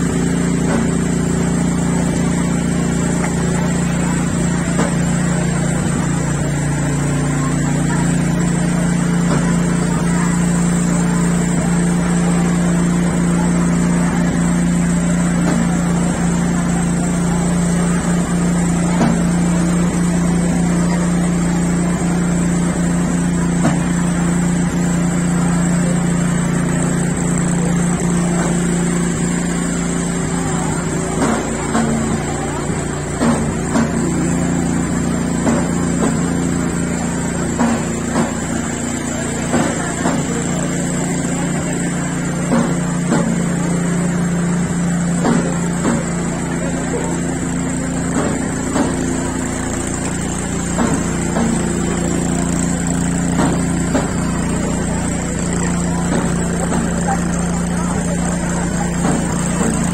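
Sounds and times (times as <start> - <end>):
engine running with low hum: 0.0 - 59.9.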